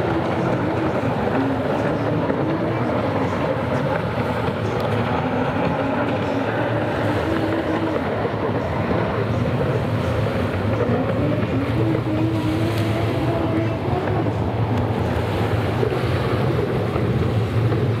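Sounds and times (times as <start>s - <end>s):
jet ski engines droning: 0.0s - 18.0s
water and wind hiss: 0.0s - 18.0s.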